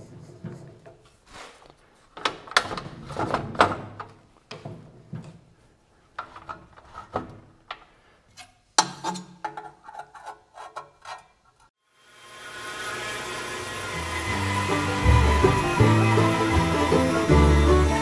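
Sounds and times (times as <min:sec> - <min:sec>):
music: 0:13.7 - 0:18.0.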